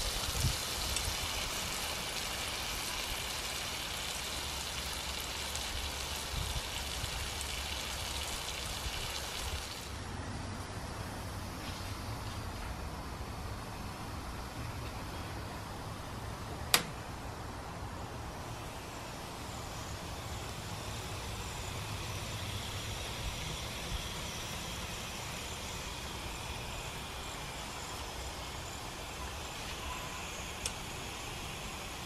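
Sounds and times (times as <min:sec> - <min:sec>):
burger patties sizzling: 0:00.0 - 0:10.0.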